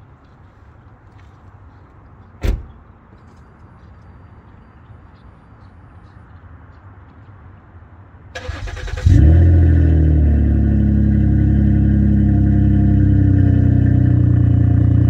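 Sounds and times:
car starter cranking: 8.4s - 9.2s
car engine idling: 8.4s - 15.0s.

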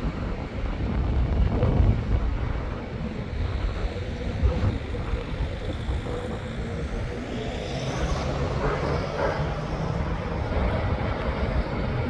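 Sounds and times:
traffic rumble: 0.0s - 12.0s.

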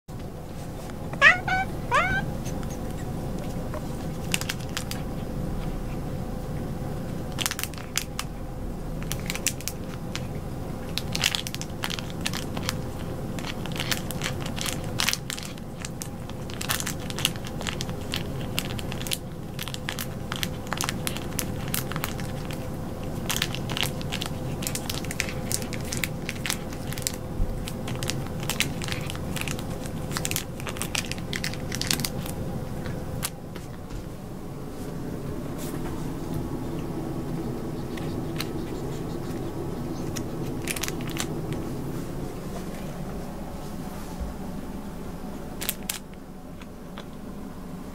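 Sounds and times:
faint steady hum: 0.1s - 47.9s
sachet crinkling and crackling: 4.0s - 5.0s, 7.3s - 8.3s, 9.0s - 32.4s, 40.0s - 41.7s, 45.6s - 46.0s
cat licking and biting: 9.0s - 33.7s, 36.8s - 41.8s.

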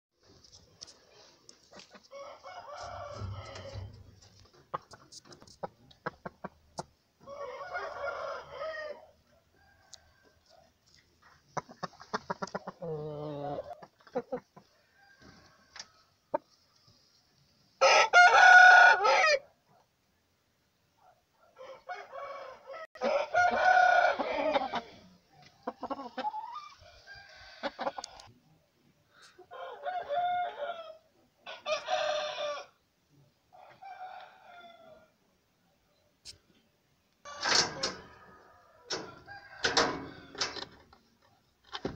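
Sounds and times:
rooster clucking: 1.7s - 8.9s, 11.5s - 14.7s, 21.9s - 28.3s
roosters crowing: 2.1s - 4.2s, 7.2s - 10.4s, 17.8s - 19.5s, 21.6s - 25.0s, 26.7s - 28.3s, 29.5s - 32.8s, 37.3s - 40.7s.

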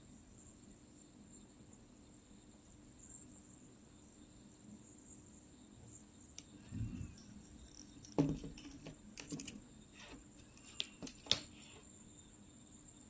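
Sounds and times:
faint high whine: 0.0s - 13.0s
catheters knocking on tabletop: 8.0s - 9.4s.

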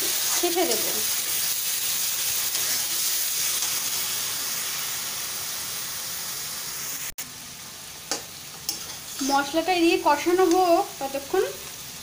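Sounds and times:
spices sizzling in hot oil: 0.0s - 12.0s.

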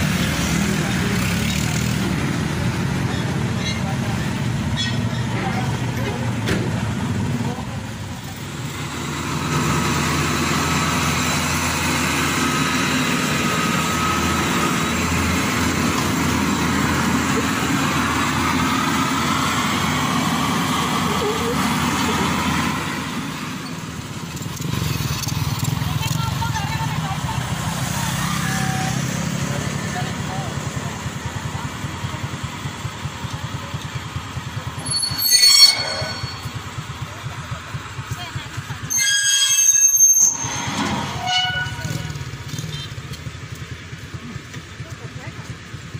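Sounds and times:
combine harvester diesel engine running: 0.0s - 45.9s
high-pitched squeal: 34.8s - 37.0s, 38.8s - 42.2s.

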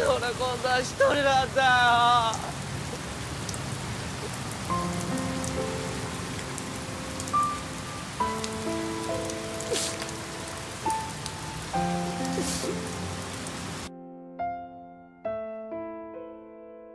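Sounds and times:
heavy rain on pavement: 0.0s - 13.9s
soft background music: 4.7s - 16.4s.

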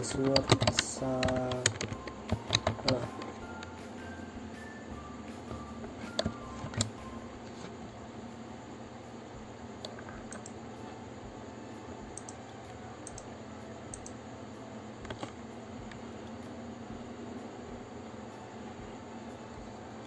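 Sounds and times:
keyboard and mouse clicks: 0.0s - 3.7s, 6.0s - 7.0s, 9.8s - 10.6s, 12.1s - 12.4s, 13.0s - 13.3s, 13.9s - 14.2s, 15.0s - 16.0s
steady low hum: 0.0s - 20.0s.

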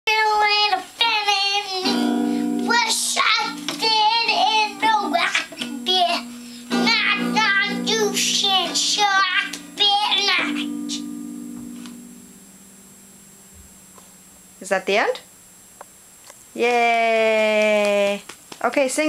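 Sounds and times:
child singing: 0.1s - 11.1s
acoustic guitar strumming: 0.1s - 16.3s.

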